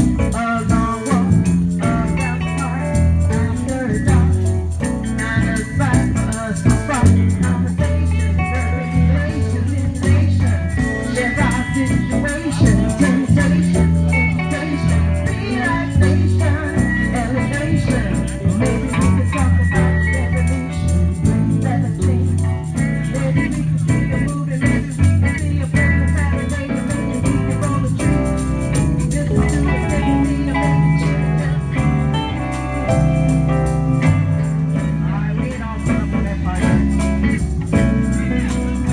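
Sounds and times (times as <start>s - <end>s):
bass line: 0.0s - 38.9s
drums: 0.0s - 38.9s
electric guitars: 0.0s - 38.9s.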